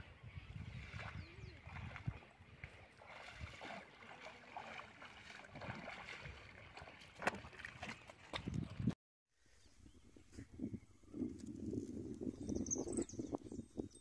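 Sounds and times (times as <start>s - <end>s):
footsteps sloshing through water: 0.4s - 9.0s
small splashes: 0.7s - 8.9s
footsteps in wet mud: 0.7s - 9.0s.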